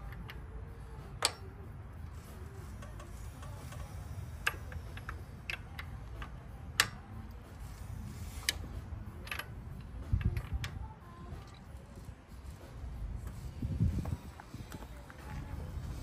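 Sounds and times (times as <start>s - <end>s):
metallic clicks of engine camshaft: 0.0s - 1.6s, 2.7s - 11.7s.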